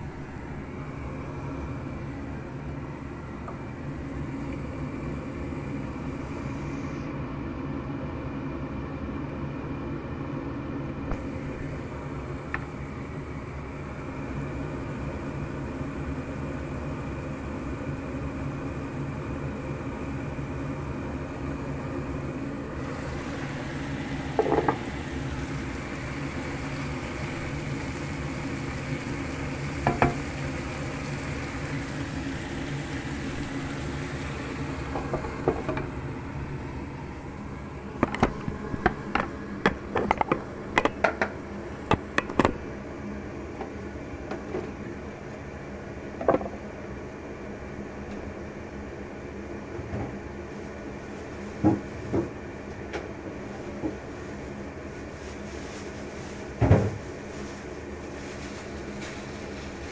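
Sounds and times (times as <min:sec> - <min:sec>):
vegetables sizzling in a pan: 0:22.8 - 0:36.4.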